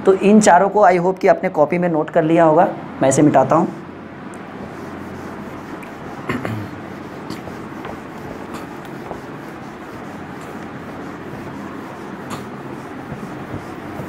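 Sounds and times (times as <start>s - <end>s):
eraser rubbing on whiteboard: 4.6s - 14.0s.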